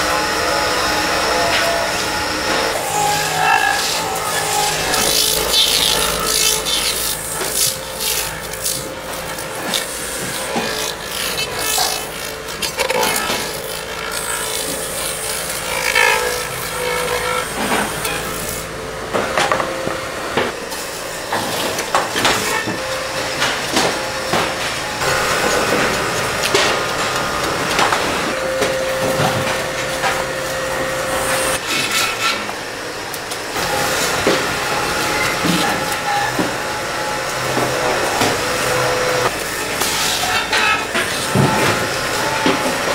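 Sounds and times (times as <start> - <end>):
grinding wheel rasping: 0.0 - 18.8.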